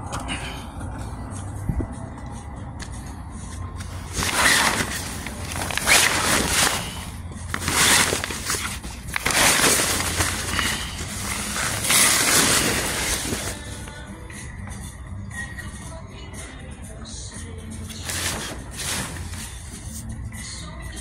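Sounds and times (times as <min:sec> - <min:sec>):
awning fabric rustling: 0:03.8 - 0:13.9, 0:17.9 - 0:20.0.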